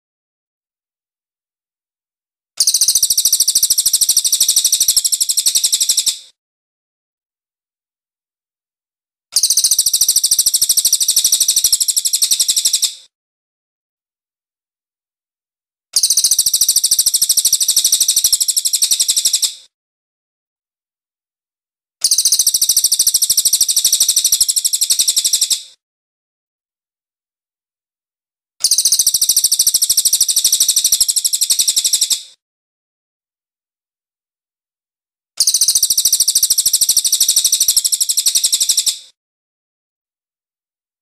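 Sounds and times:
high-pitched bird trill: 0:28.6 - 0:32.2, 0:35.4 - 0:38.9.

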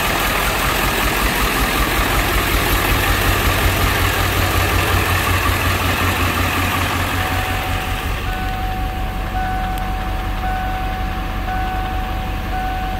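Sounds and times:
diesel engine idling: 0:00.0 - 0:12.9
warning chime beeping: 0:06.8 - 0:12.9.

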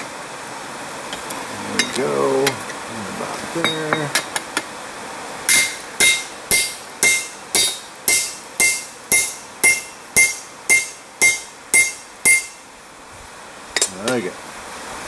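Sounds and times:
hammer striking metal rod: 0:05.5 - 0:12.6.

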